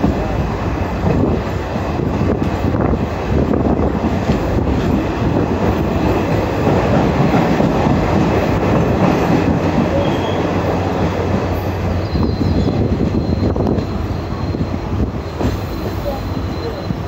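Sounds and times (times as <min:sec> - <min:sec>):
train wheels rumbling on rails: 0:00.0 - 0:17.0
high wheel squeal: 0:09.9 - 0:10.5, 0:11.5 - 0:17.0.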